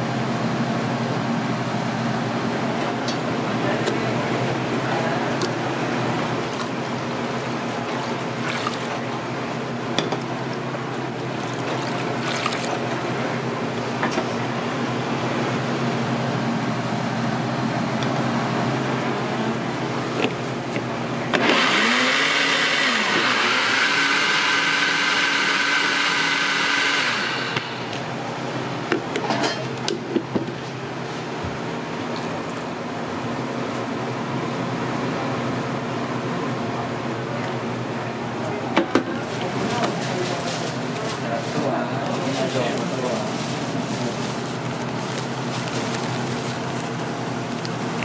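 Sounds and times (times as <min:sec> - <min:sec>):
steady background hum: 0:00.0 - 0:21.6, 0:27.1 - 0:48.0
blender motor whining: 0:21.3 - 0:27.9.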